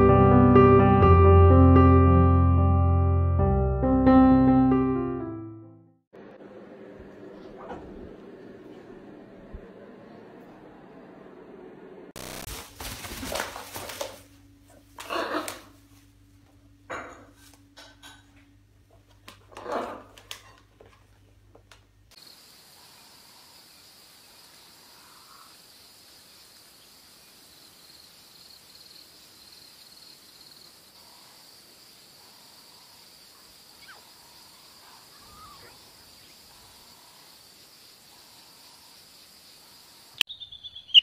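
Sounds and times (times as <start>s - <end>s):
faint scattered calls: 32.1s - 39.0s.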